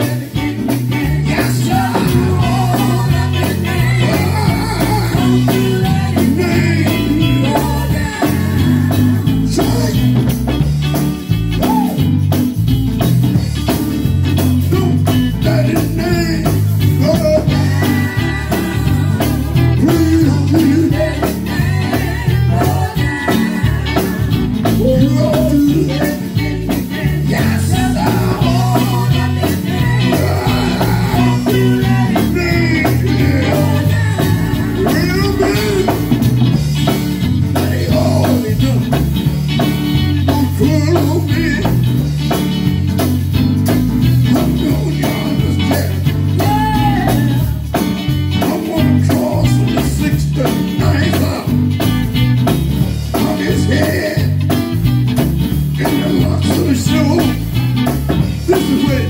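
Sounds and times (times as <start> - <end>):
women singing backing vocals: 0.0 - 9.9, 17.5 - 24.7, 26.8 - 35.2
man singing lead vocal: 0.0 - 10.6, 14.6 - 39.4, 40.0 - 42.1, 44.2 - 51.8, 53.0 - 54.6, 55.6 - 57.6, 58.2 - 59.0
amplified band with heavy bass: 0.0 - 59.0.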